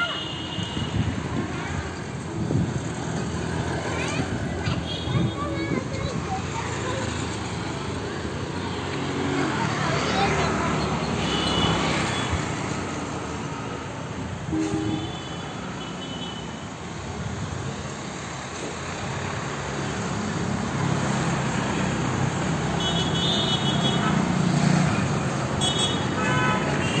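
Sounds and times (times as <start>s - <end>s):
passing vehicles: 0.0s - 27.0s
engine: 17.2s - 27.0s.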